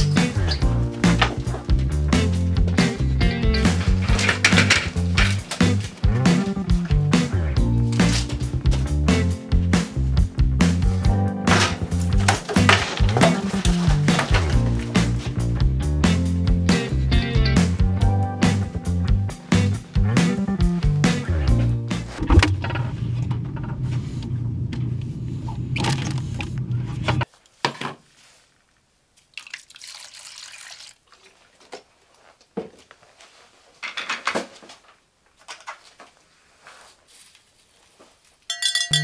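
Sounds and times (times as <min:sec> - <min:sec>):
background music: 0:00.0 - 0:22.6
milk pouring into bowl: 0:29.3 - 0:31.6
spoon rustling and clinking: 0:38.4 - 0:39.0.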